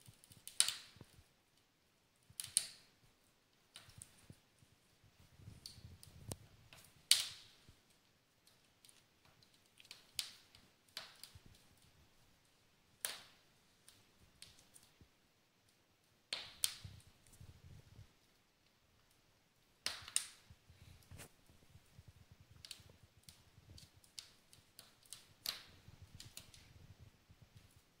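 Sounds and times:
fire crackling and popping: 0:00.0 - 0:28.0.

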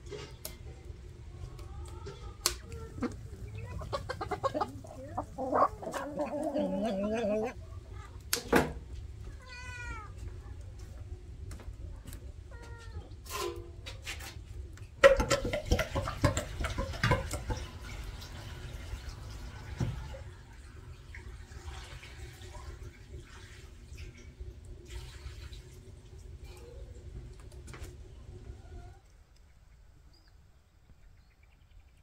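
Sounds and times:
clattering and rustling: 0:00.0 - 0:01.0
cat meowing: 0:09.3 - 0:10.2.

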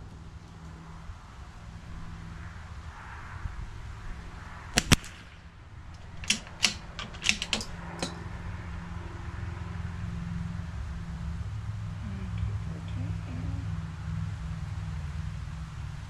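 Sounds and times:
rifle scope clicks: 0:06.0 - 0:08.2.

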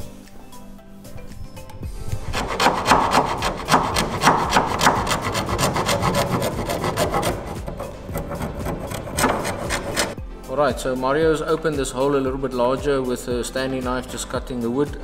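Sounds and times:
file rasping in wood: 0:02.0 - 0:10.2.

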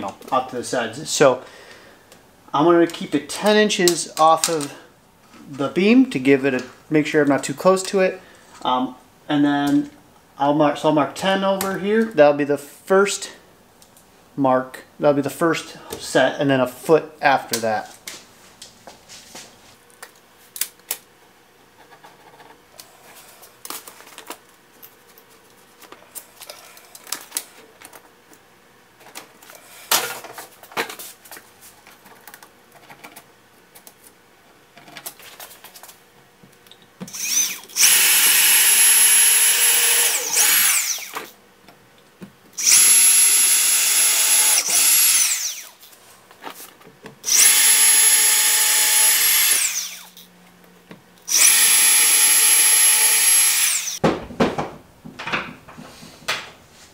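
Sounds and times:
cordless drill boring into wood: 0:37.1 - 0:41.3, 0:42.6 - 0:45.8, 0:47.3 - 0:50.1, 0:51.3 - 0:54.0.

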